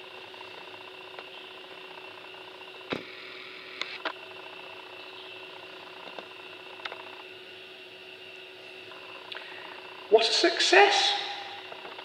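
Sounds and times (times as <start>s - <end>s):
machine hum with tones: 0.0s - 12.0s.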